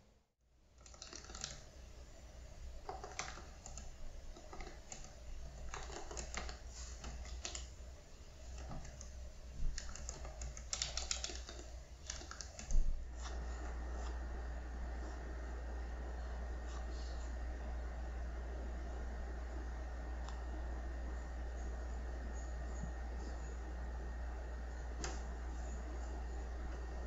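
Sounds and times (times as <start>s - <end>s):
laptop keyboard typing: 0.8s - 1.8s, 2.6s - 13.4s.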